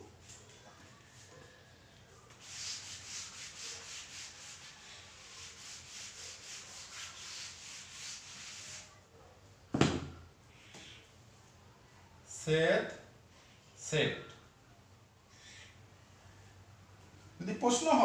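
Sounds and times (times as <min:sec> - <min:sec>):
eraser wiping whiteboard: 0:02.3 - 0:09.0.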